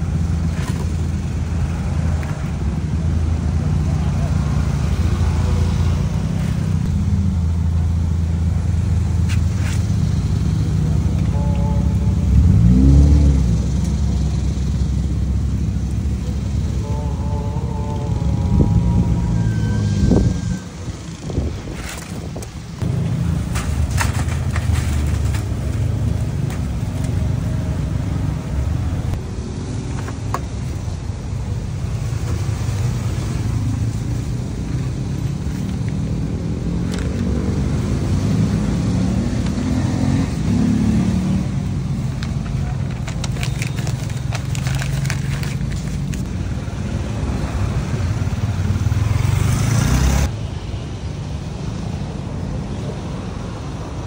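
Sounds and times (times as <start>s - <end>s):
traffic rumble: 0.0s - 54.0s
vehicle passing: 9.5s - 29.8s, 44.1s - 50.3s.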